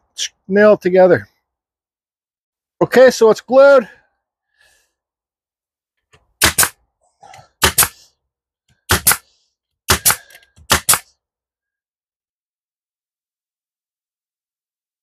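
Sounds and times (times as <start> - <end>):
nail gun firing: 6.4 - 6.8, 7.6 - 8.0, 8.8 - 9.3, 9.9 - 11.1.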